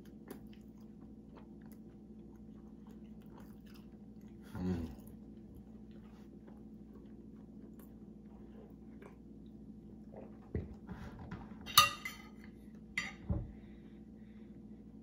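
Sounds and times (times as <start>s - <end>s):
tableware clinking: 11.7s - 12.4s.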